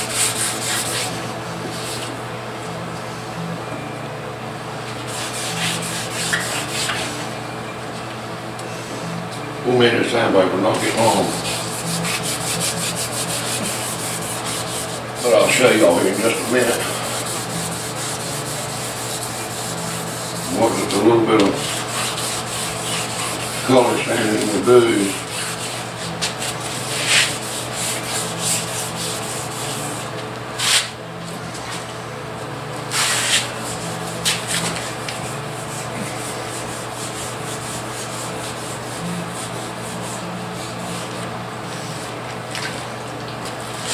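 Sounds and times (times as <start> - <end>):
sandpaper rubbing on metal: 0.0 - 1.2, 5.0 - 7.2, 10.8 - 31.0, 32.9 - 41.1.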